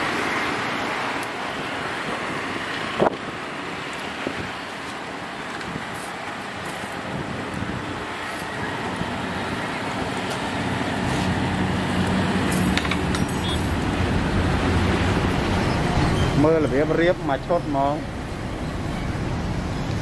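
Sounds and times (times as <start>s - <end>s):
engine humming: 7.6s - 20.0s.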